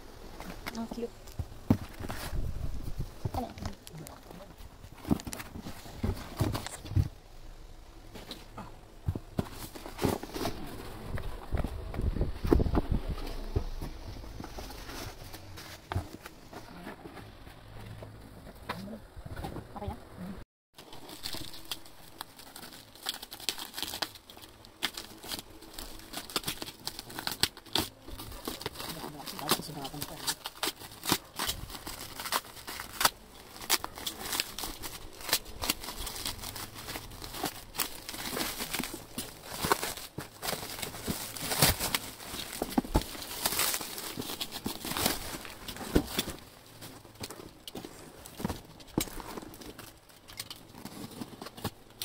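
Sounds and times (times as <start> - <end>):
plastic stretch wrap crinkling: 20.8 - 52.0.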